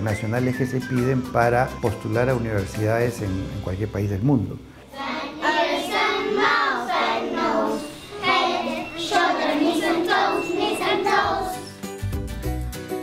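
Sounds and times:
children singing in chorus: 0:04.9 - 0:11.7.

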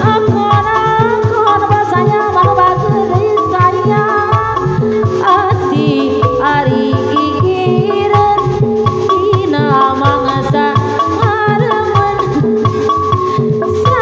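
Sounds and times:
wavering melody: 0:00.0 - 0:14.0.

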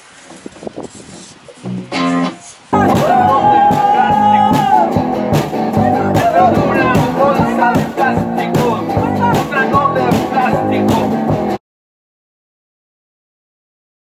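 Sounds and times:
loud electric guitar: 0:01.7 - 0:11.6.

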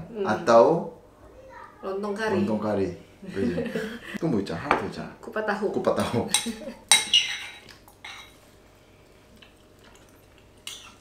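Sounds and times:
metal spoons clinking ceramic bowls: 0:06.0 - 0:08.4, 0:10.6 - 0:11.0.

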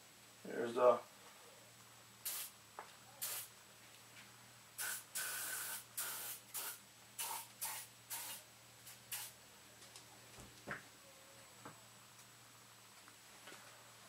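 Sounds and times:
aerosol can spraying: 0:02.2 - 0:02.5, 0:03.2 - 0:03.5, 0:04.8 - 0:09.4.

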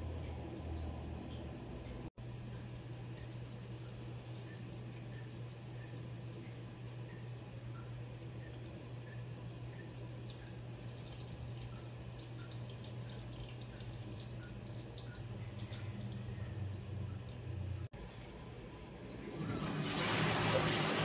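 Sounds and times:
washing machine low hum: 0:00.0 - 0:21.0
water splashing into washing machine drum: 0:19.4 - 0:21.0.

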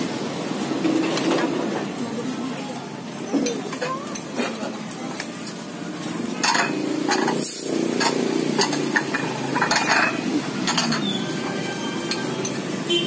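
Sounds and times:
ceramic bowls clinking: 0:06.4 - 0:12.7.

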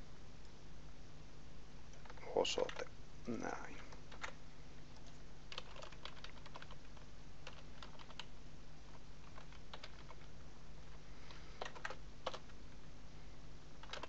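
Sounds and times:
low steady hum: 0:00.0 - 0:14.0
keyboard typing: 0:01.9 - 0:02.9, 0:03.8 - 0:08.3, 0:08.9 - 0:12.6, 0:13.8 - 0:14.0.

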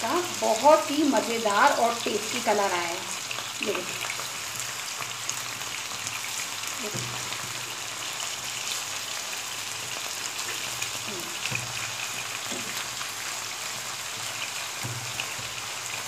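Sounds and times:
kebabs sizzling in hot oil: 0:00.0 - 0:16.0
spatula knocking on pan: 0:14.8 - 0:15.6.

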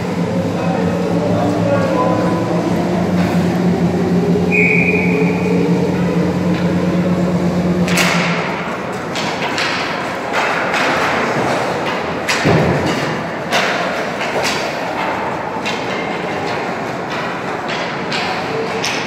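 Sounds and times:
hockey pucks and sticks knocking: 0:09.0 - 0:19.0.

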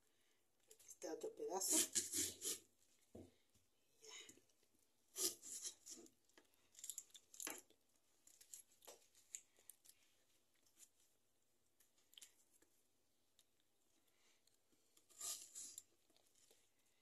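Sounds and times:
onion skin crackling and tearing: 0:06.7 - 0:07.6.

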